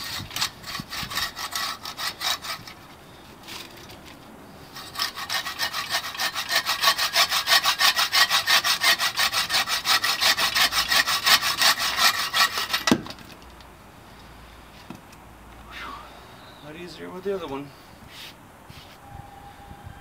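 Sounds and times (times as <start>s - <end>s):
buck saw cutting log: 0.0s - 2.9s, 4.8s - 13.2s.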